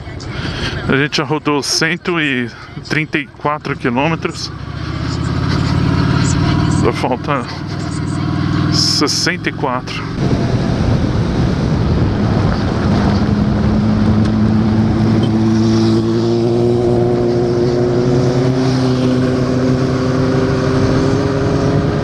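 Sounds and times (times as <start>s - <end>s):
motorcycle engine cruising: 1.8s - 22.0s
wind rushing over camera: 10.1s - 17.1s.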